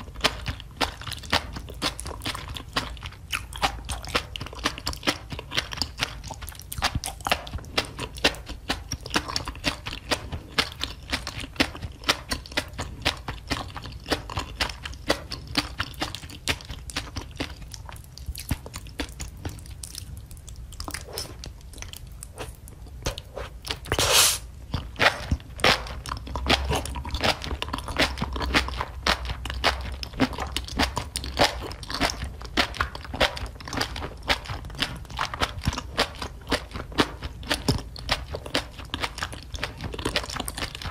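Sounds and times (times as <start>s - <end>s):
close chewing and crunching: 0.0s - 40.9s.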